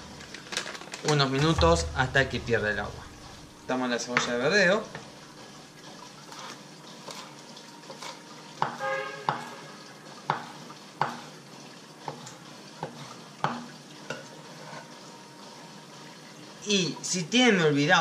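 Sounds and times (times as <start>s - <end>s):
knife chopping on wooden board: 10.3s - 11.2s.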